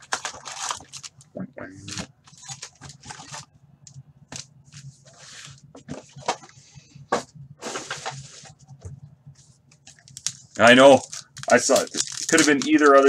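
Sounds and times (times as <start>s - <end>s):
foil packs crinkling: 0.0s - 3.5s, 9.8s - 13.0s.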